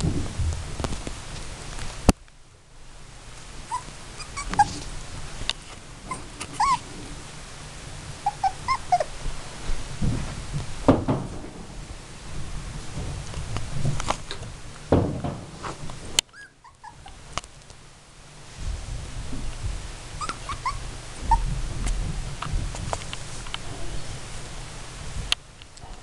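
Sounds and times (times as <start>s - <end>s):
puppies whimpering: 3.7s - 4.9s, 6.0s - 6.9s, 8.2s - 9.2s, 16.3s - 17.2s, 20.2s - 21.5s
puppies yipping: 3.7s - 4.9s, 6.0s - 6.9s, 8.2s - 9.1s, 16.3s - 17.2s, 20.2s - 21.5s.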